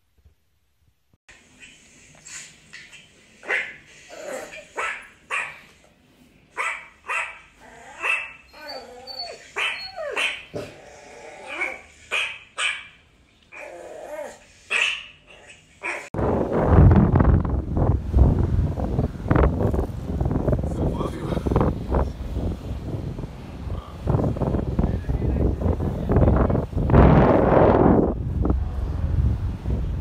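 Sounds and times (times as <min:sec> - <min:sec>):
dog yapping: 0:01.6 - 0:05.7, 0:06.6 - 0:10.8, 0:11.4 - 0:16.1
dog whining: 0:07.1 - 0:11.9, 0:13.5 - 0:16.1.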